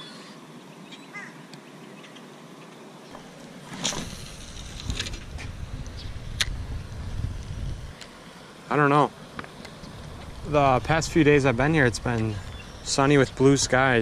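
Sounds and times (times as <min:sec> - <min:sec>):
wind buffeting microphone: 0:04.0 - 0:08.0, 0:09.7 - 0:14.0.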